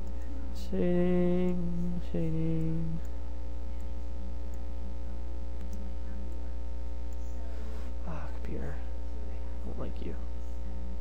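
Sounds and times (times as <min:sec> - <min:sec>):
electrical mains hum: 0:00.0 - 0:11.0
man singing drawn-out flat notes: 0:00.6 - 0:03.0.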